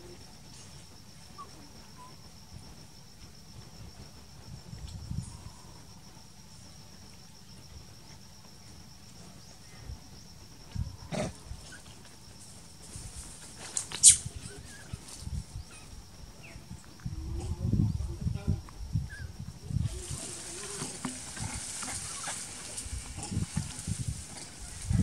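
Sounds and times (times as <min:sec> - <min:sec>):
high-pitched insect trill: 0:00.0 - 0:25.0
rustles and knocks: 0:19.9 - 0:25.0.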